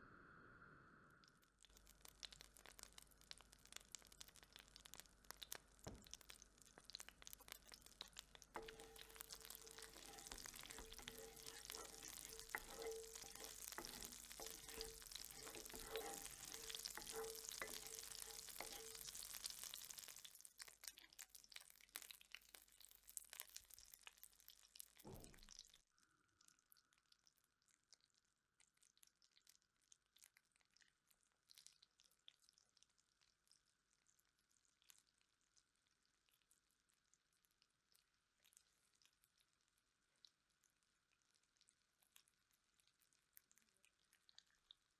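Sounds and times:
butter and oil sizzling in skillet: 0:01.5 - 0:25.6
wooden spatula stirring: 0:01.8 - 0:21.2.

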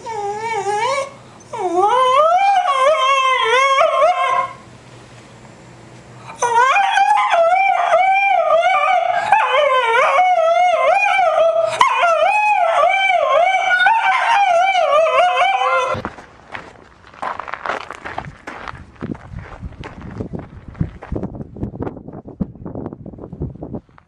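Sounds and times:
dog howling: 0:00.0 - 0:04.6, 0:06.3 - 0:16.0.

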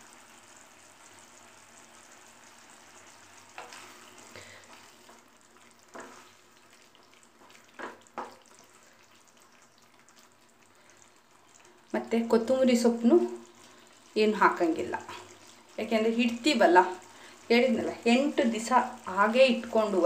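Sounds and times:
onions sizzling in a pan: 0:00.0 - 0:20.0
spatula scraping a pan: 0:05.9 - 0:06.4.

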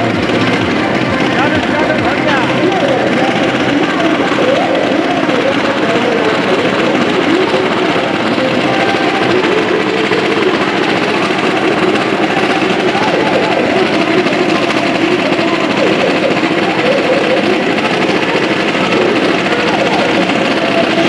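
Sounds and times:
small motorcycle engines running: 0:00.0 - 0:21.0.

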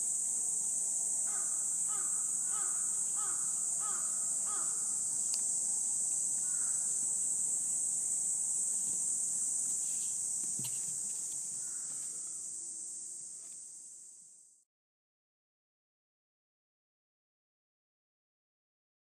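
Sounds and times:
high-pitched insect chorus: 0:00.0 - 0:14.7.

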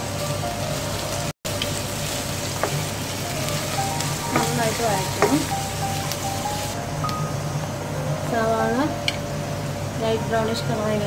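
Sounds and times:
onions sizzling in hot oil: 0:00.0 - 0:11.0
wooden spatula knocking on pan: 0:04.3 - 0:05.6.

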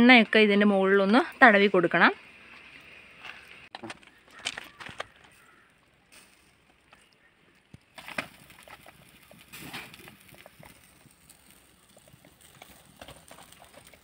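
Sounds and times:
fat crackling and popping: 0:00.3 - 0:14.0
chicken sizzling on grill: 0:05.0 - 0:14.0.

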